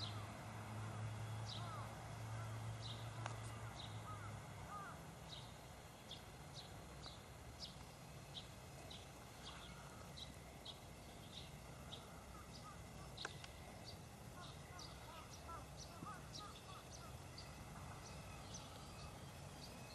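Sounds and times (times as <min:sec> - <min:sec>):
low steady hum: 0:00.0 - 0:19.9
rising and falling calls: 0:08.4 - 0:19.9.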